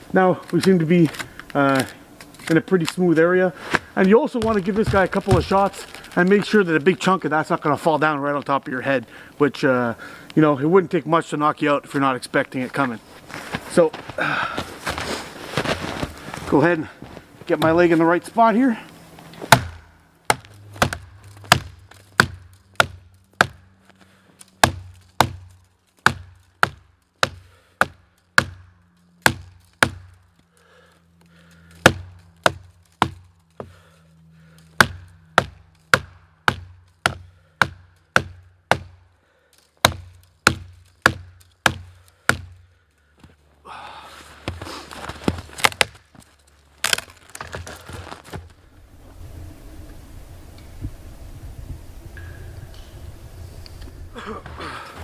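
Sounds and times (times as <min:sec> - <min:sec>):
hatchet chopping into tree: 0:19.4 - 0:23.8, 0:24.4 - 0:30.2, 0:31.8 - 0:33.7, 0:34.7 - 0:39.0, 0:39.6 - 0:42.7, 0:45.3 - 0:46.1
noise: 0:42.9 - 0:55.0.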